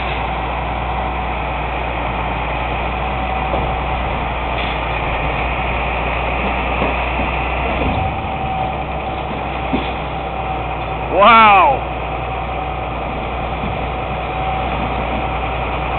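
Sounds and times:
truck engine droning: 0.0s - 15.9s.

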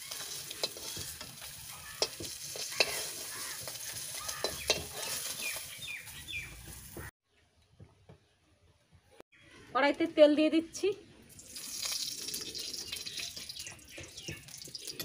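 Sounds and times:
metal spoon scraping a pan: 0.0s - 5.8s
fish sizzling in hot oil: 0.0s - 7.1s, 11.3s - 15.0s.

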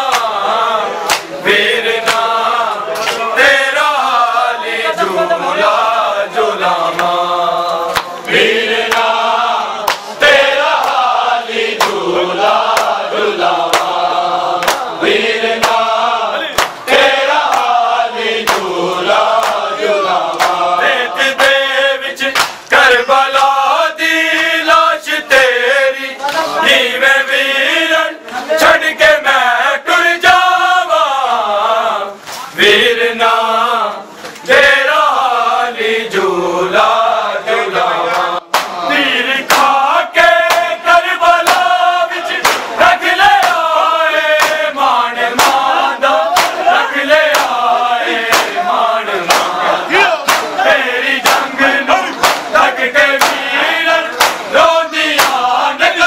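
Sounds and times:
hands slapping chests: 0.0s - 0.4s, 1.0s - 1.4s, 2.0s - 3.3s, 7.9s - 9.2s, 9.8s - 10.2s, 10.8s - 11.1s, 11.8s - 12.0s, 12.7s - 13.0s, 13.6s - 14.0s, 14.6s - 14.9s, 15.6s - 15.9s, 16.5s - 16.8s, 17.4s - 17.8s, 18.4s - 18.7s, 19.3s - 20.7s, 22.3s - 22.7s, 38.1s - 38.8s, 39.4s - 39.8s, 40.4s - 40.8s, 41.4s - 42.8s, 43.4s - 43.8s, 44.4s - 44.7s, 45.4s - 45.7s, 46.3s - 47.6s, 48.3s - 48.6s, 49.2s - 50.6s, 51.2s - 53.5s, 54.1s - 54.5s, 55.1s - 55.5s
men chanting a lament: 0.0s - 56.0s.

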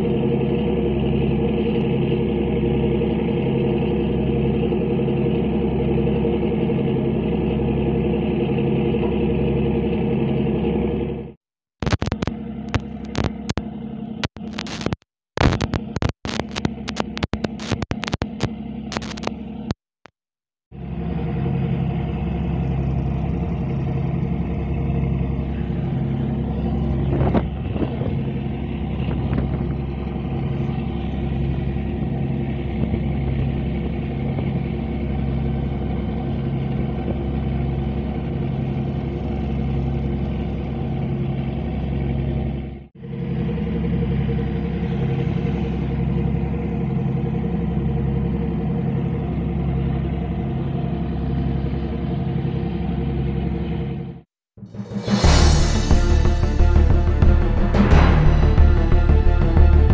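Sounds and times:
ship engines droning: 0.0s - 11.4s, 20.8s - 54.2s.

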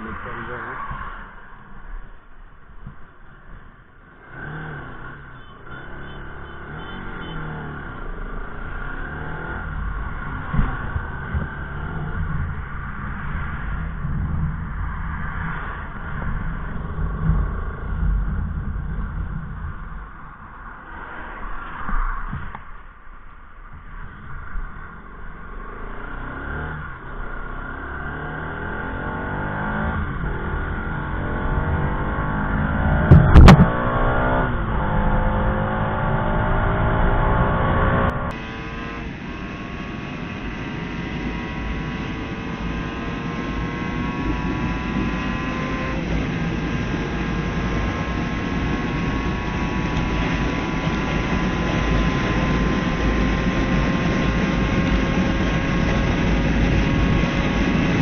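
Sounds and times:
motorcycle engine accelerating: 2.8s - 21.4s, 23.9s - 58.0s
sharp loud knock: 33.1s - 33.8s.

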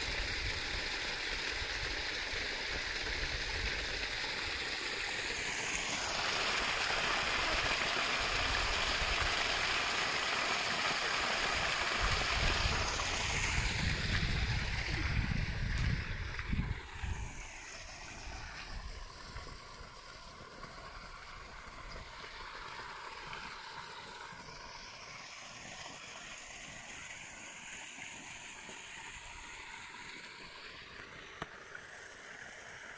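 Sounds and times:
running water rushing: 0.0s - 32.9s
low rumbling on microphone: 12.4s - 17.3s.

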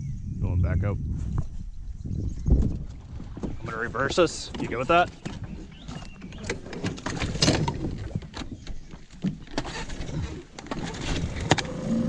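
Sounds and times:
outboard motor knocks and clunks: 2.5s - 12.0s.

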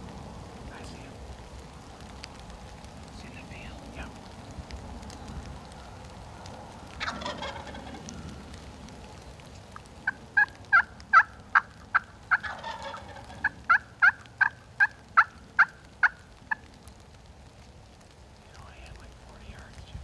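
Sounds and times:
turkey gobbling: 6.7s - 8.6s, 9.6s - 16.9s
sharp turkey yelps: 7.0s - 8.2s, 10.0s - 16.6s.

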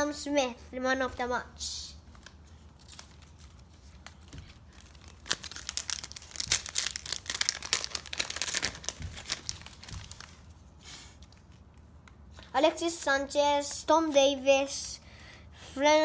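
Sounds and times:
foil wrapper crinkling: 2.2s - 10.5s.

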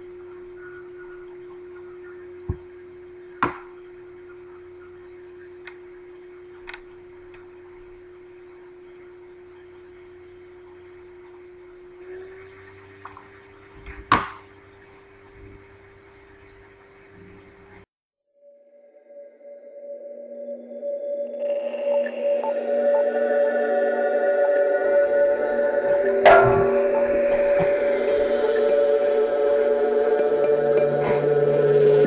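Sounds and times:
steady ringing tone: 0.0s - 13.7s, 18.4s - 32.0s.

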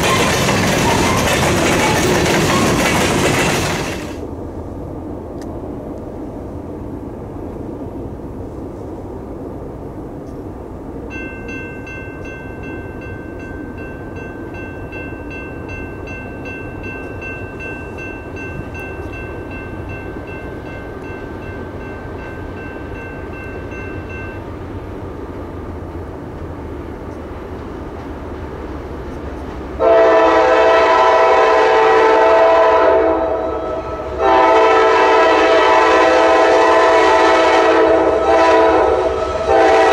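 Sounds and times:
diesel locomotive rumble: 0.0s - 39.9s
locomotive air horn blasts: 29.8s - 39.9s.

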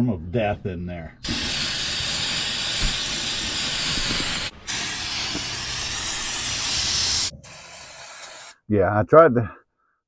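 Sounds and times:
aerosol can spraying: 1.3s - 8.6s.

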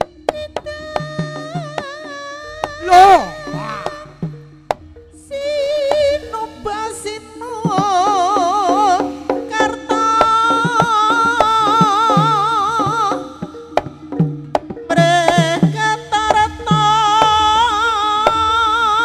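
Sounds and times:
high wavering melody: 0.9s - 5.4s.

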